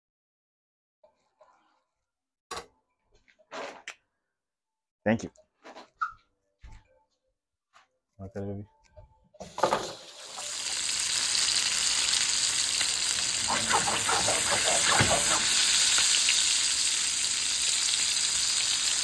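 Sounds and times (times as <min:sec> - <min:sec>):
fish sizzling in a pan: 0:09.6 - 0:19.0.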